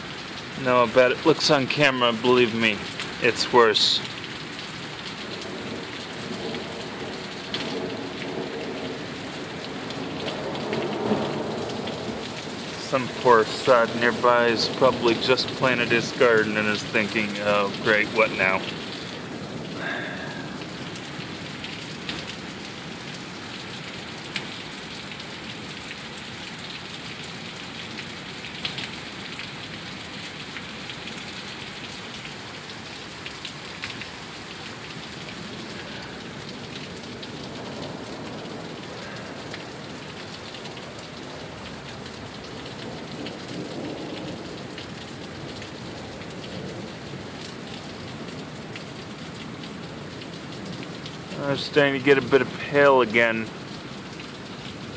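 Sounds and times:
sharp raindrop hits: 0.0s - 25.8s
heavy rain pouring: 0.0s - 54.9s.

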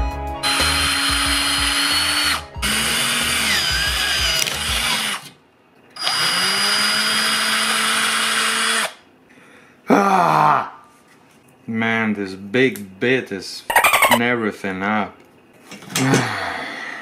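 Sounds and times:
power drill boring: 0.4s - 5.3s, 6.0s - 9.0s.

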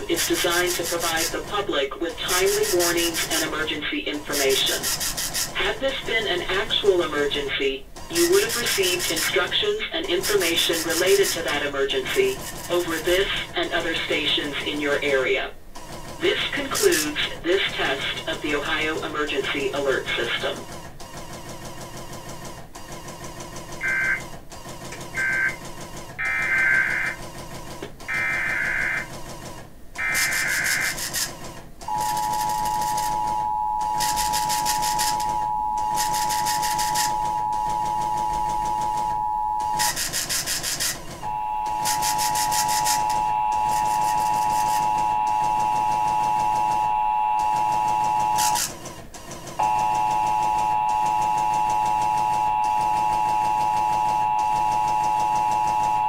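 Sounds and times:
radio data bursts: 2.0s - 15.2s, 16.2s - 20.6s, 23.8s - 24.2s, 25.1s - 25.6s, 26.2s - 27.2s, 28.1s - 29.1s, 30.0s - 31.3s, 31.9s - 48.7s
two-tone alert signal: 23.8s - 24.2s, 25.2s - 25.6s, 31.9s - 40.0s, 41.2s - 48.6s, 49.6s - 56.0s.

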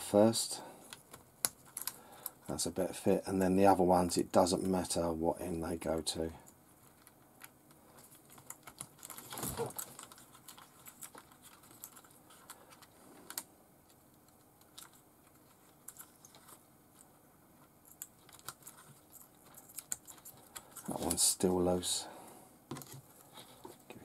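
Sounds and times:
clicks of handling wire connectors: 0.8s - 2.5s.

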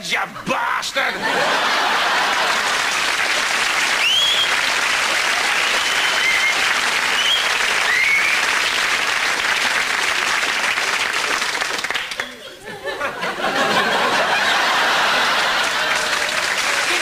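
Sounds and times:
audience applauding: 1.4s - 12.4s, 13.6s - 17.0s
short rising whistles: 3.9s - 4.7s, 5.5s - 8.6s.

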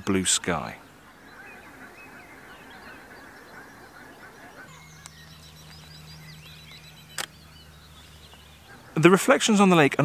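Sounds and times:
small birds chirping: 0.0s - 10.0s
distant geese honking: 0.2s - 10.0s
low steady hum: 4.7s - 9.3s
sharp click: 7.1s - 7.4s.

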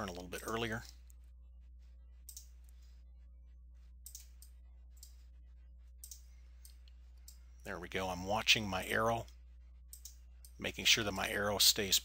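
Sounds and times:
low room hum: 0.0s - 12.0s
computer mouse clicks: 2.3s - 2.5s, 4.0s - 5.2s, 6.0s - 7.4s, 9.9s - 10.6s.

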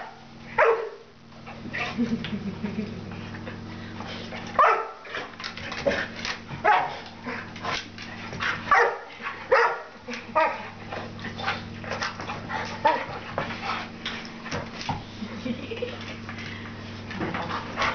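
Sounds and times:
dog barking and yipping: 0.6s - 1.0s, 4.6s - 5.0s, 6.6s - 7.0s, 8.7s - 10.6s.

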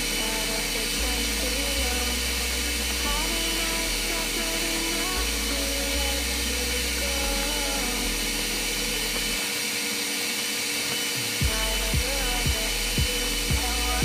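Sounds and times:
regular beat: 11.2s - 14.0s
background song: 11.4s - 14.0s.

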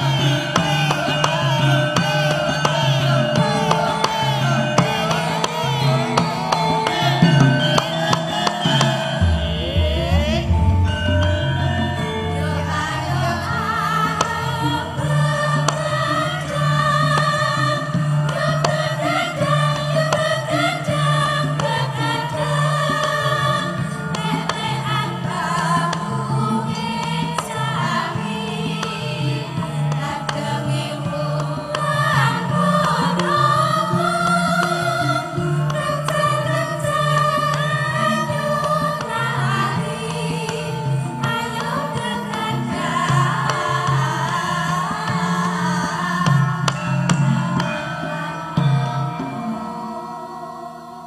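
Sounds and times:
steady low instrumental notes: 0.0s - 23.1s
percussive strikes: 0.0s - 50.5s
female choir singing: 0.0s - 51.0s
bass notes: 9.2s - 12.6s.

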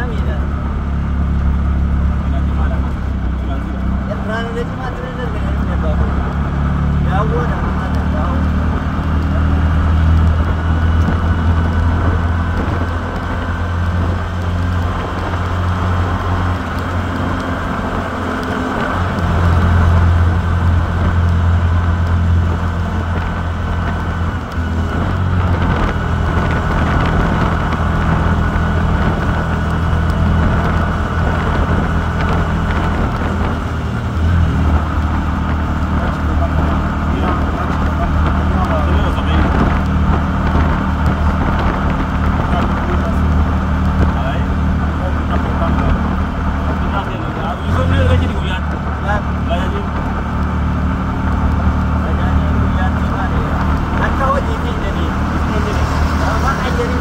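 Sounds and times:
road noise rushing: 0.0s - 57.0s
vehicle engine drone: 0.0s - 57.0s.

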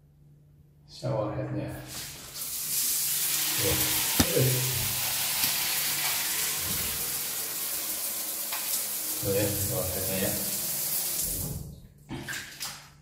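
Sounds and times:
shower head spraying water: 2.4s - 9.0s.

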